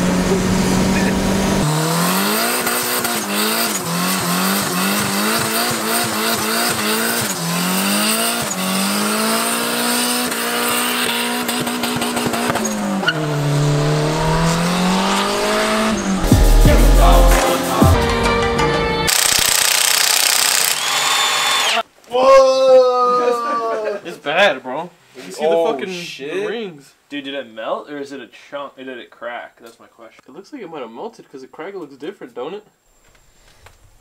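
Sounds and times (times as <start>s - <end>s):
car engine revving high: 0.0s - 18.0s
tyres squealing: 10.4s - 16.2s
loud low heavy sound: 13.4s - 18.2s.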